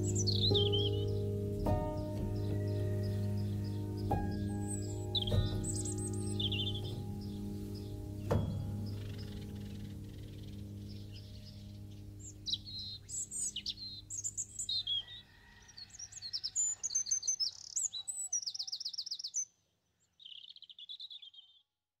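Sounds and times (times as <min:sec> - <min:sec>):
music: 0:00.0 - 0:14.7
songbirds singing: 0:00.0 - 0:21.7.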